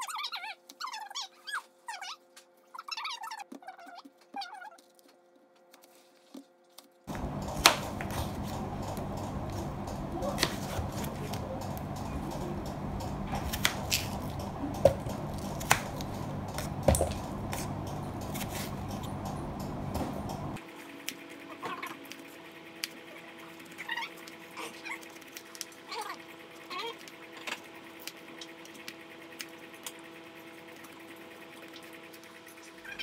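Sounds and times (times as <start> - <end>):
low hum: 7.1 - 23.6.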